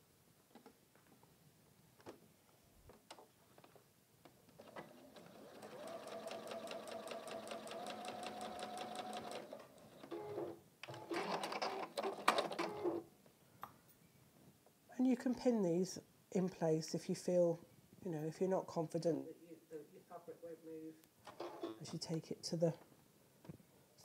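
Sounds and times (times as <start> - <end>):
sewing machine stitching: 4.6 - 12.8.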